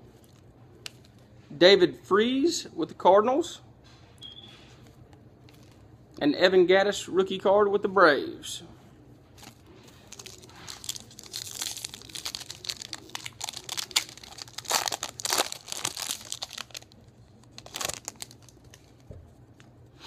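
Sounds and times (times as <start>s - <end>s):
foil wrapper crinkling: 9.4s - 19.2s.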